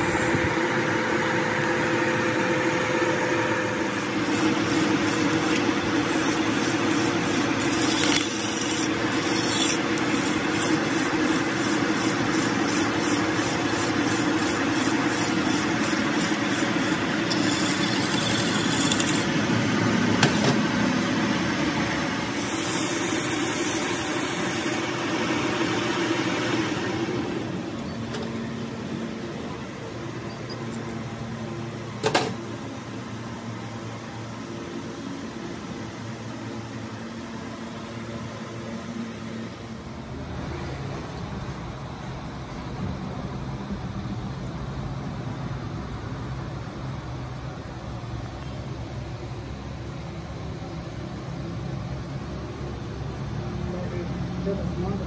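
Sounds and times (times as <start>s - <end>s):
metal lathe hum: 0.0s - 27.8s
hand file rasping on steel: 4.1s - 19.3s.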